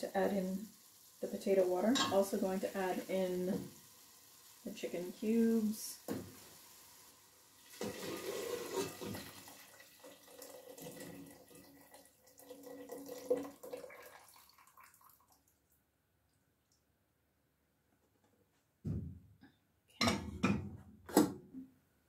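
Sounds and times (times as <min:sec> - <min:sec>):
water pouring and splashing: 0:07.5 - 0:15.6.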